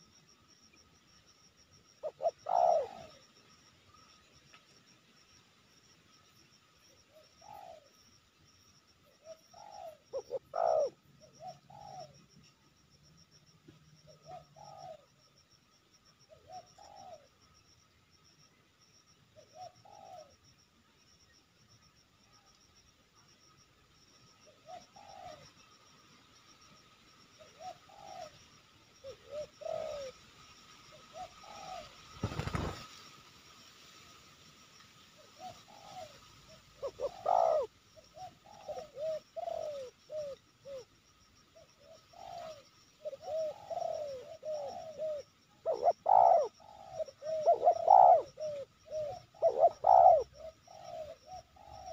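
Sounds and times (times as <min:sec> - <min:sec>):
doves cooing: 0:01.9 - 0:03.5, 0:07.1 - 0:08.0, 0:09.1 - 0:12.3, 0:14.0 - 0:15.2, 0:16.3 - 0:17.4, 0:19.4 - 0:20.4, 0:24.4 - 0:25.7, 0:27.3 - 0:30.2, 0:30.8 - 0:32.9, 0:35.4 - 0:40.9, 0:41.6 - 0:51.9
wing flapping: 0:32.1 - 0:33.2.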